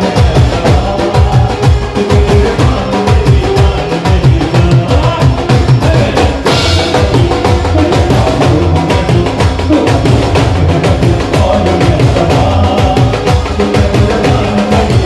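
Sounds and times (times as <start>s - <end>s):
live band with dhol and drums: 0.0s - 15.0s
cymbal crash: 6.5s - 7.2s.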